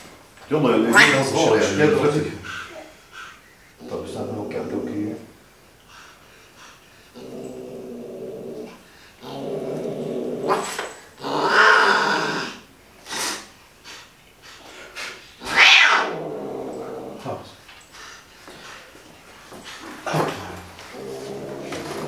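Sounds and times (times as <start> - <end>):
cat hissing: 0.8 - 1.5, 6.1 - 17.4
cat yowling: 0.9 - 1.4, 15.4 - 16.2
cat growling low: 7.1 - 12.7, 15.4 - 17.5, 20.1 - 22.0.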